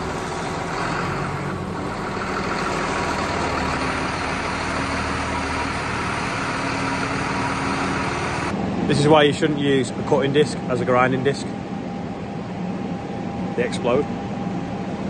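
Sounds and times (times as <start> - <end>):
tractor diesel engine idling: 0.0 - 10.9.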